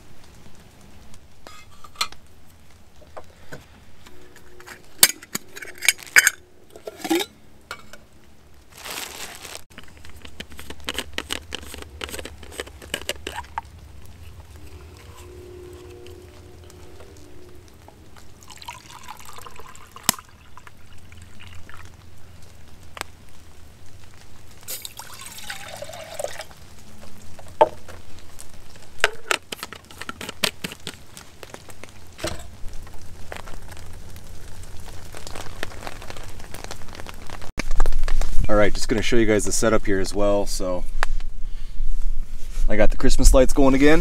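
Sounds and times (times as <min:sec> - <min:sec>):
low steady hum: 0:00.0 - 0:29.3
liquid being poured: 0:09.8 - 0:22.1, 0:24.7 - 0:26.7.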